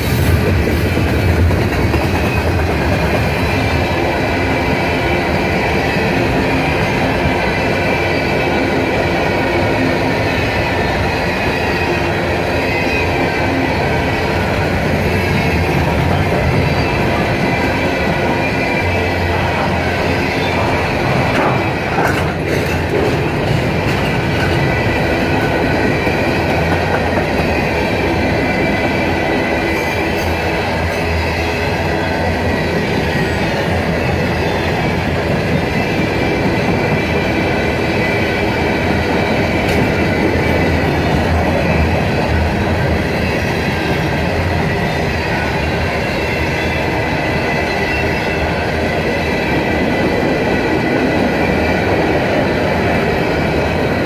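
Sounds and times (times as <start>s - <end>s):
steel wheels rumbling on rail: 0.0s - 54.0s.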